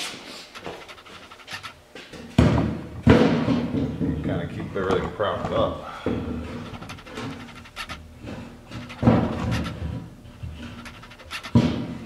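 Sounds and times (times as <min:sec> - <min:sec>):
metal case knocking and scraping: 0:02.4 - 0:12.0.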